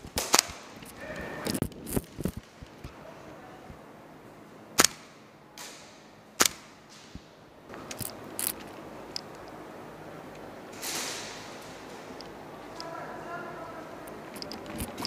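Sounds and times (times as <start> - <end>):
airsoft rifle shots: 0.0 - 0.8, 4.8 - 7.3, 10.8 - 11.9.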